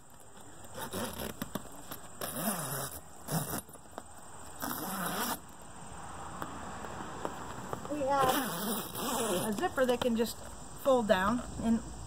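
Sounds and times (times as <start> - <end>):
zipper rasping: 0.6 - 3.9, 4.5 - 5.4, 8.2 - 9.6.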